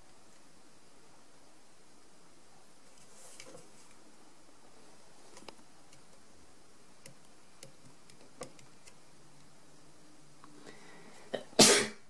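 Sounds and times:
faint ticks and taps: 5.3 - 6.3, 7.0 - 9.6.

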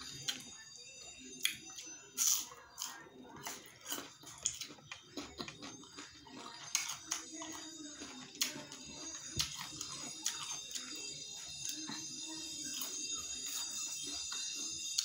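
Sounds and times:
crunchy chewing: 1.4 - 15.0.

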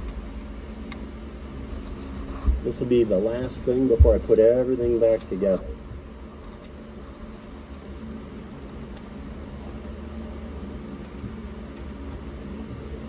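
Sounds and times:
low mechanical hum: 0.0 - 13.0
faint clicks of wires: 8.9 - 9.2.

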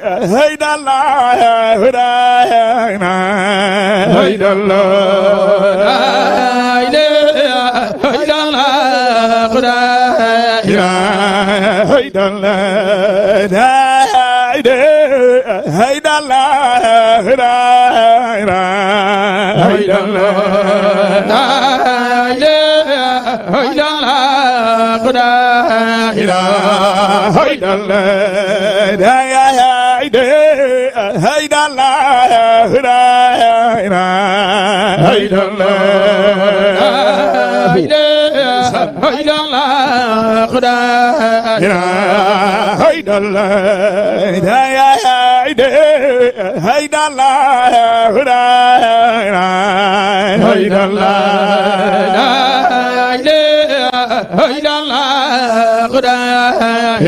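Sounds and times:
man chanting: 0.0 - 57.0.

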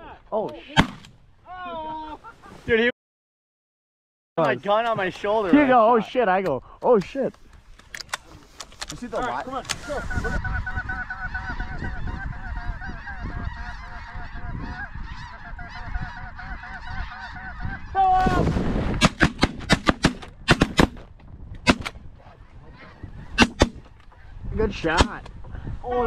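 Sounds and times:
shotgun blasts: 0.8 - 1.2, 18.4 - 21.0, 23.4 - 23.8
snow geese honking: 9.2 - 18.0.

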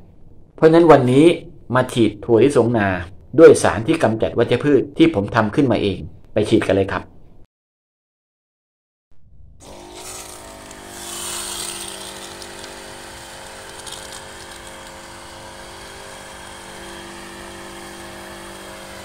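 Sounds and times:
motorised sprayer pumping: 9.6 - 19.0.

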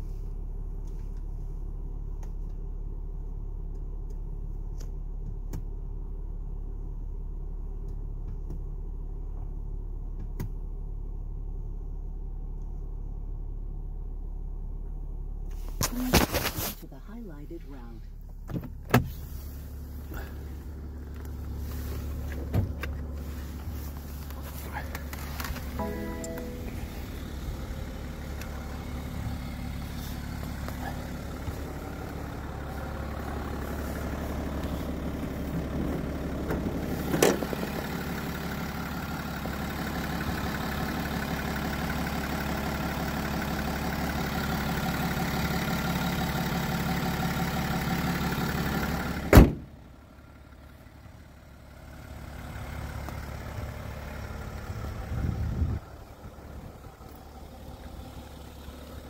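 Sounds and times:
diesel engine idling: 0.0 - 59.0
car bonnet slamming shut: 49.3 - 49.8.

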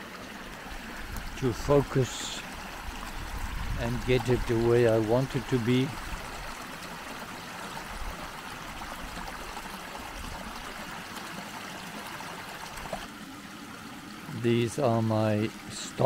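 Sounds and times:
water flowing through rocky channel: 0.0 - 16.0
water spilling into pool: 0.0 - 16.0.

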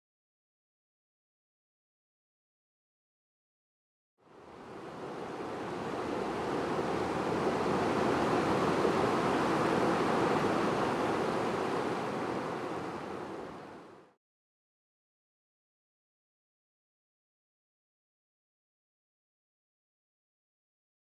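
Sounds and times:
river rushing over rocks: 4.4 - 13.9.

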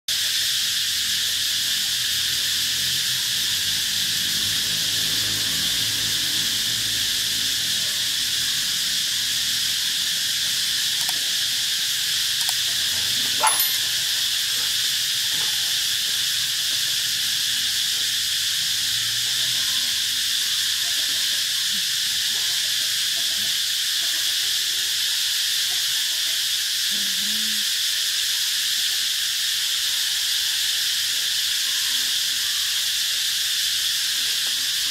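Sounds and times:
sharp click: 11.0 - 11.2, 13.4 - 13.9
dogs growling: 12.4 - 13.9.

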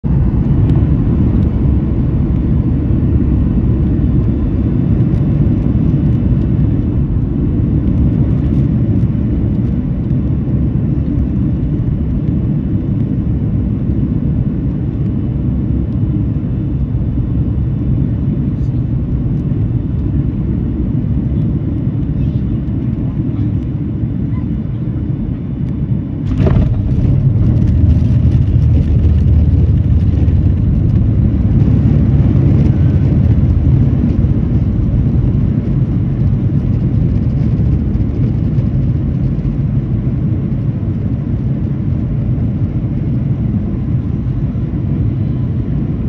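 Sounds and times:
jet engines rumbling: 0.0 - 46.0
rushing air: 26.0 - 35.6.

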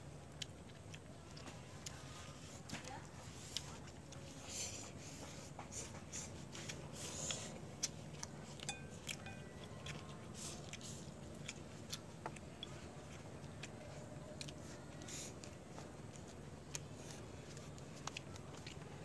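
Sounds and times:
slurping and chewing noodles: 0.2 - 19.0.

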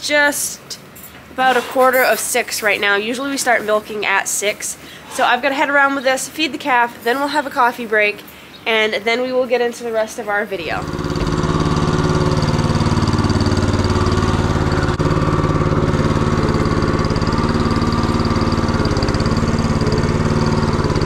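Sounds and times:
small engine running: 10.7 - 21.0.

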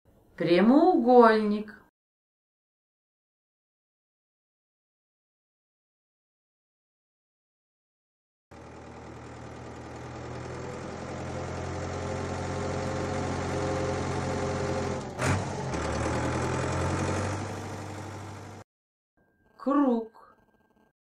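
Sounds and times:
cartoon tractor engine running: 8.5 - 18.6.

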